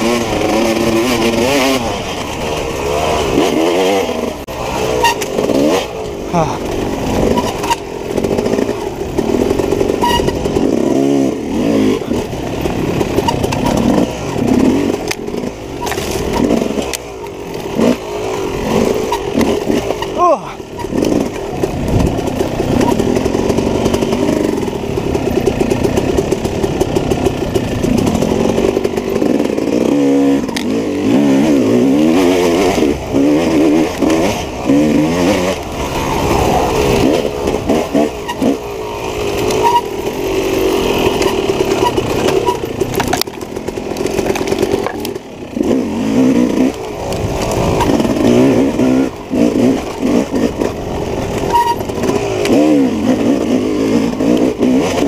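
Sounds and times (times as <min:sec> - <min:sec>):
dirt bike engine revving: 0:00.0 - 0:55.0
sharp knocks and clatter: 0:12.7 - 0:18.0, 0:40.5 - 0:48.5.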